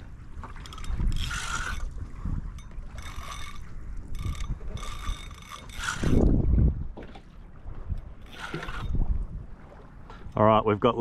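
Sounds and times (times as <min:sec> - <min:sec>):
fishing reel ratcheting buzzes: 0:00.6 - 0:01.9, 0:02.6 - 0:06.3.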